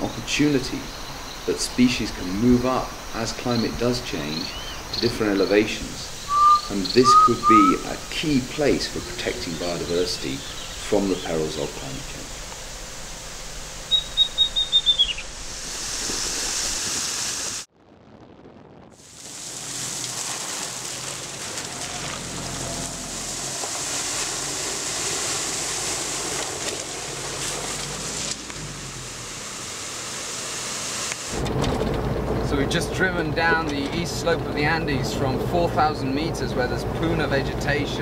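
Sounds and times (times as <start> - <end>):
car driving on wet dirt road: 19.0 - 38.0.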